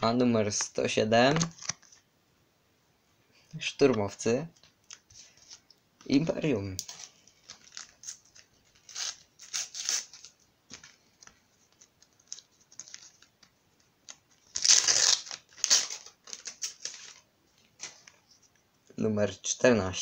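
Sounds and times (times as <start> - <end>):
sticker packet rustling and tearing: 0.5 - 2.0, 6.8 - 10.9, 11.7 - 17.2.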